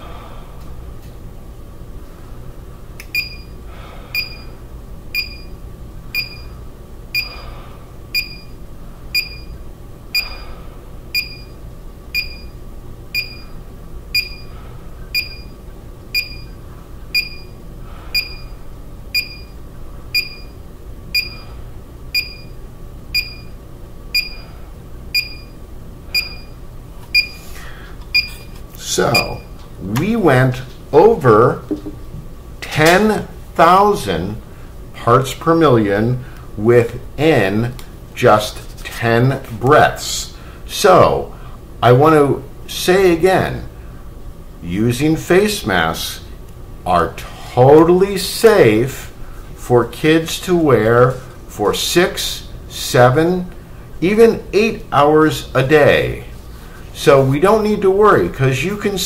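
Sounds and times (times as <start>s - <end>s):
alarm beeping: 3.1s - 4.6s, 5.2s - 7.4s, 8.1s - 10.5s, 11.1s - 14.5s, 15.1s - 24.5s, 25.1s - 26.6s, 27.2s - 27.4s, 28.1s - 29.6s
faint breaths through mask: 3.6s - 4.4s, 7.2s - 8.0s, 27.3s - 28.0s.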